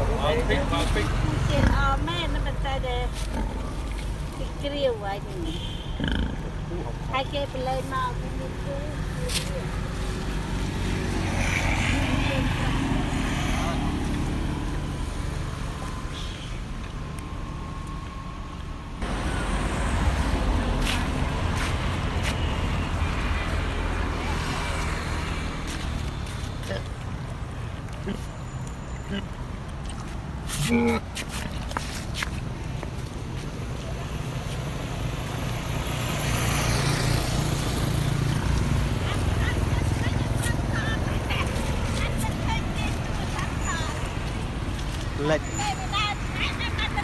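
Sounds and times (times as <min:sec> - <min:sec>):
motorbike engine passing: 0:09.9 - 0:15.4, 0:35.0 - 0:44.2.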